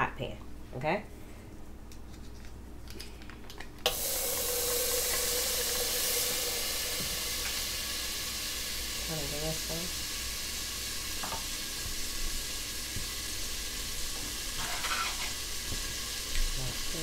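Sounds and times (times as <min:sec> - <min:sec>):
butter sizzling in pot: 0:03.9 - 0:17.0.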